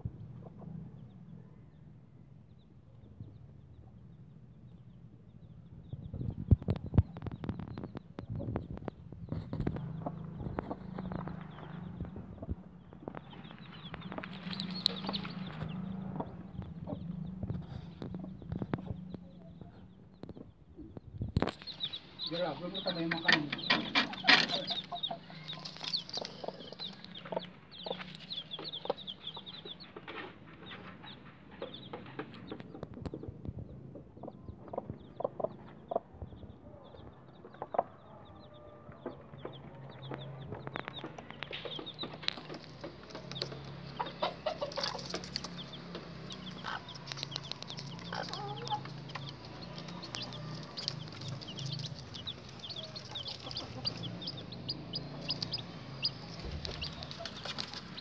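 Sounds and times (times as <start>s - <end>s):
chicks peeping: 0.0s - 58.0s
hen clucking low: 46.6s - 57.3s.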